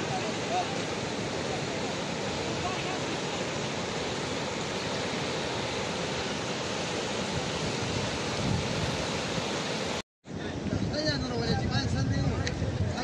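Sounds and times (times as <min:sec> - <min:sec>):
river water rushing: 0:00.0 - 0:10.0.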